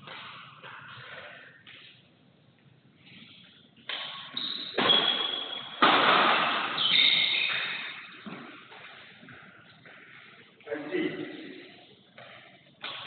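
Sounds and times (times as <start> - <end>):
shoes squeaking on court: 3.0 - 5.8, 6.7 - 10.5
racket hitting shuttlecock: 3.8 - 9.0, 12.2 - 13.0.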